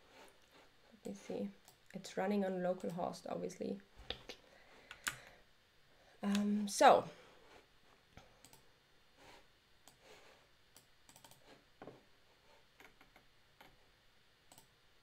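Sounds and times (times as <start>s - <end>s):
computer keyboard clicks: 10.8s - 11.4s.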